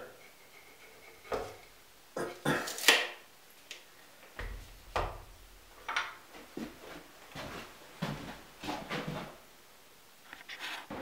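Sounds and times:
tools knocking on wooden boards: 0:01.3 - 0:01.6
dull low thump: 0:04.4 - 0:05.6.

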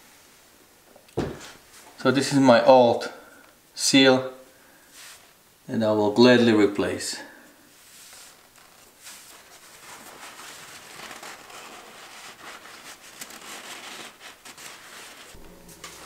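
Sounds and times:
paper towel rustling: 0:07.7 - 0:16.0.

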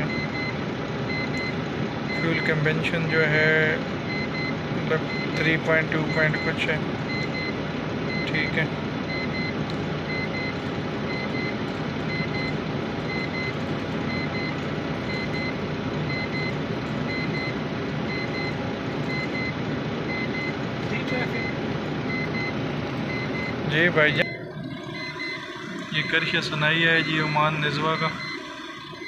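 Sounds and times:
diesel engine idling: 0:00.0 - 0:29.0
short high beeps: 0:21.1 - 0:29.0.

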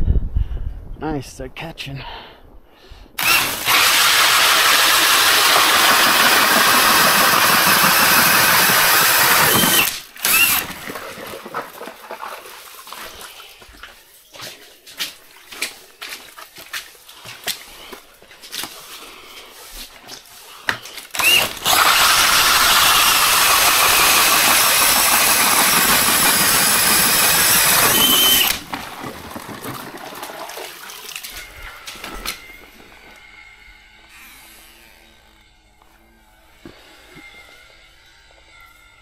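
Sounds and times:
motor whine: 0:03.2 - 0:10.7, 0:21.2 - 0:28.6
ice auger grinding through ice: 0:03.2 - 0:13.3, 0:18.6 - 0:35.3.

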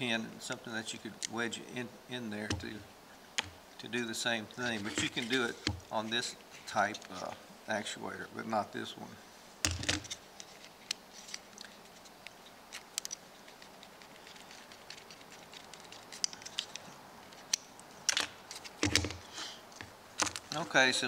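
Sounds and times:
faint plastic clicks and handling: 0:09.7 - 0:19.2.

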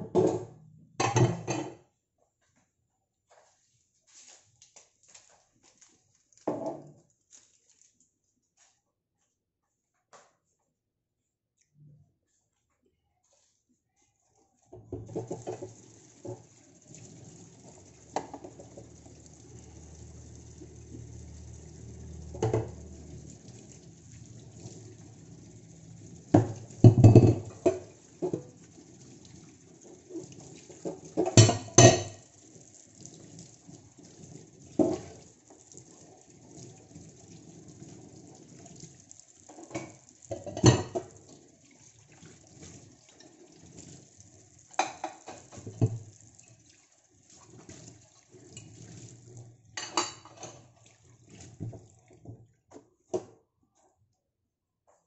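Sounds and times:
pots and dishes clinking: 0:00.0 - 0:01.8, 0:26.4 - 0:28.4, 0:30.8 - 0:32.3, 0:44.8 - 0:46.0, 0:49.8 - 0:50.8.

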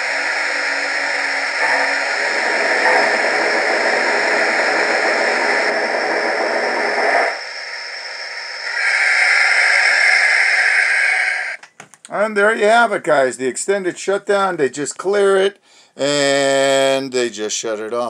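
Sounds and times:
steam hiss from toy speaker: 0:00.0 - 0:11.6.

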